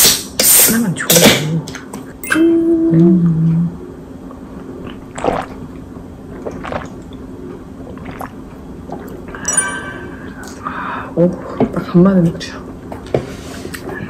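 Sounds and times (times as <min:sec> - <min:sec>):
people gulping and swallowing: 0:04.7 - 0:09.7.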